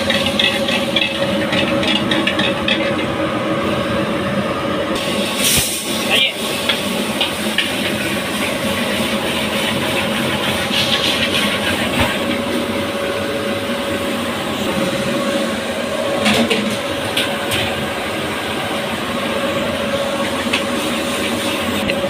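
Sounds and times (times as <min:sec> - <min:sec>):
gas burners roaring: 0:00.0 - 0:22.0.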